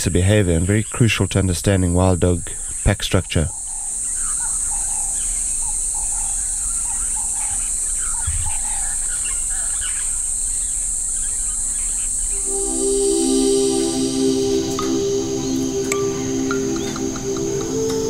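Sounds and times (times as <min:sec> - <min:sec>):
short chirping calls: 0:03.5 - 0:18.0
high-pitched insect drone: 0:03.9 - 0:18.0.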